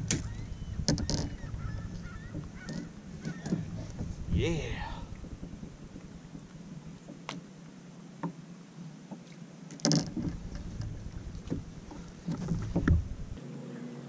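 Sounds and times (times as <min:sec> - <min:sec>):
wind and water rumble: 0:00.0 - 0:14.0
sharp knocks: 0:10.0 - 0:13.2.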